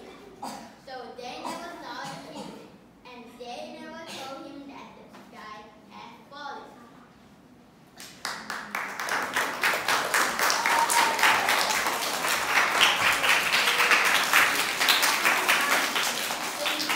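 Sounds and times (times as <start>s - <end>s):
children applauding: 8.2s - 16.9s.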